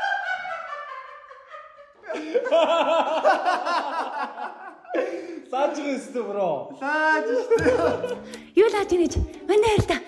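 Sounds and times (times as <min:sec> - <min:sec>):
men laughing hard: 0:00.0 - 0:05.4, 0:07.3 - 0:08.4.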